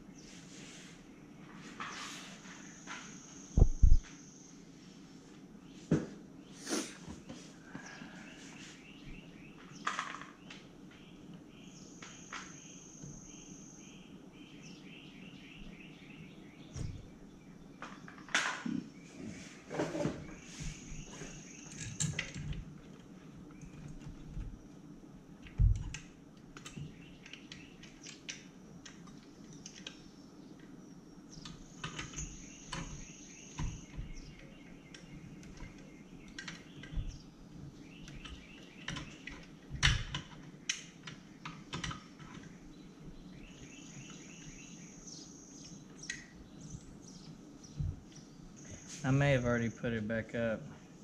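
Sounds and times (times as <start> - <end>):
hand tools clicking and tapping: 31.4 - 37.2.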